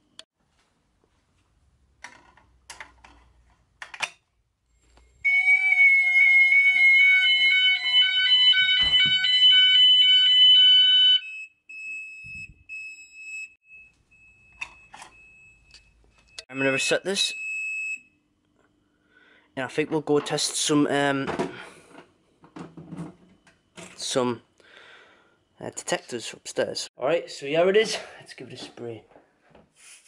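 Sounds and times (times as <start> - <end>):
alternating multi-tone fire alarm: 5.2 - 18.1
quiet single tone: 13.7 - 16.8.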